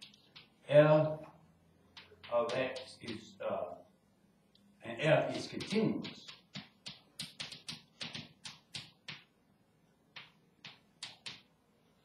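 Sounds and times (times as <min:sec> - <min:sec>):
chalk scratching on blackboard: 0:02.0 - 0:03.3, 0:05.3 - 0:09.2.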